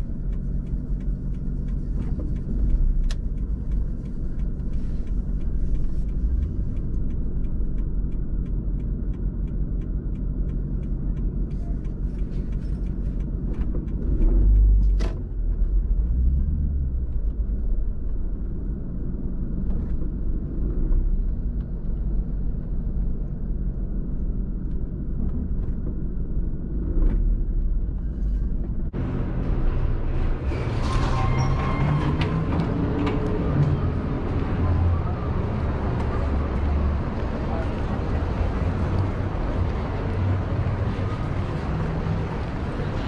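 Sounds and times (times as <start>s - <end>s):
faint regular ticking: 0.0s - 14.9s.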